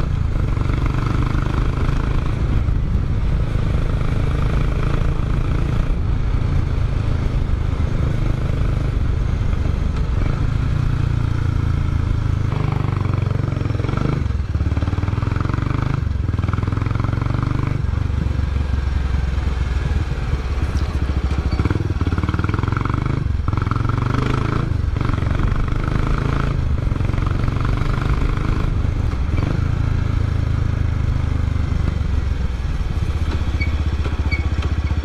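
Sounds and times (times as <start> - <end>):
motorcycle engine and exhaust: 0.0 - 35.0.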